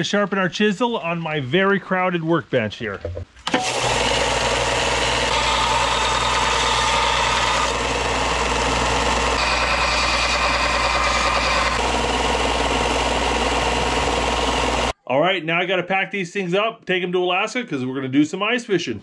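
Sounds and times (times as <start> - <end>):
belt sander grinding steel: 3.6 - 14.9.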